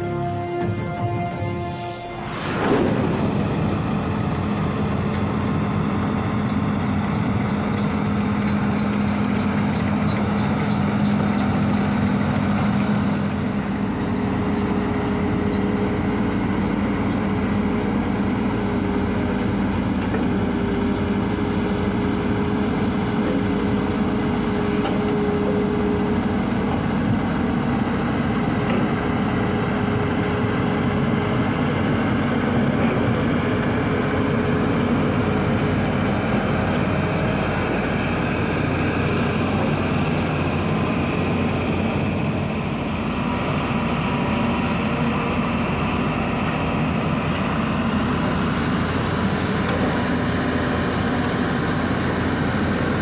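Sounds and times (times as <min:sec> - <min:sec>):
excavator diesel engines running: 0:00.0 - 0:53.0
steady humming tone: 0:01.5 - 0:07.2.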